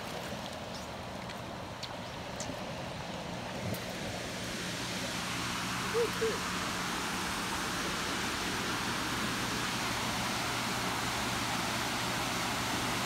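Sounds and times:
waterfall rushing over rocks: 3.9 - 13.0.

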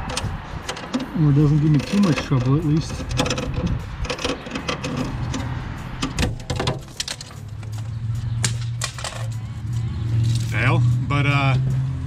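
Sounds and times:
plastic clip breaking: 6.0 - 9.4.

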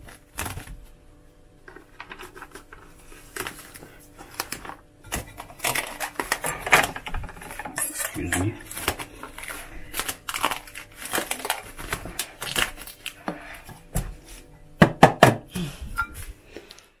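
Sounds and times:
cling film crinkling: 1.7 - 13.7.

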